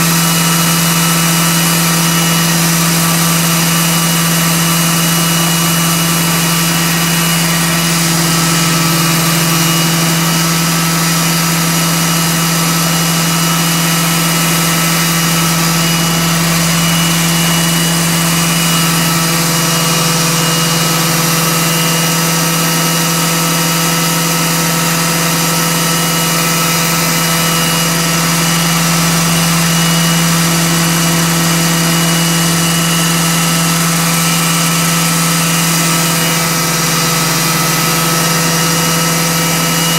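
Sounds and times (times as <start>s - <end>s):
model helicopter rotors humming: 0.0s - 39.9s.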